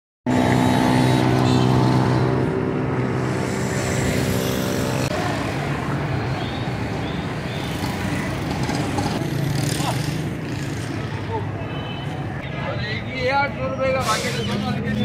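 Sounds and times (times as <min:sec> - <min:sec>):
street traffic din: 0:00.2 - 0:15.0.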